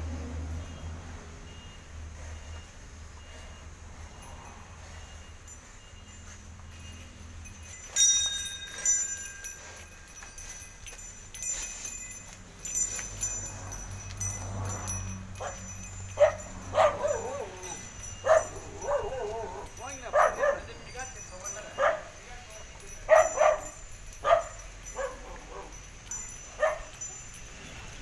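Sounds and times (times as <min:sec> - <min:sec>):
bell clanking: 0:02.4 - 0:28.0
dog barking: 0:16.2 - 0:20.7, 0:21.8 - 0:22.1, 0:23.1 - 0:25.8, 0:26.5 - 0:27.0.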